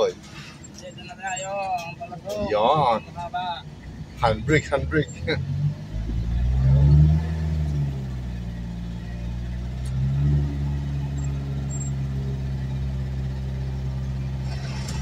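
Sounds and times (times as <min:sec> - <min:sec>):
vehicle engine in low gear: 0:03.8 - 0:15.0.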